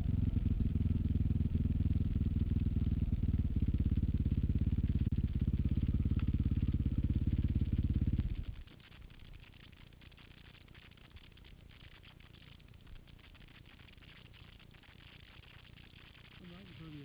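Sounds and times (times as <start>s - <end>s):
dirt bike engine running: 0.0s - 8.6s.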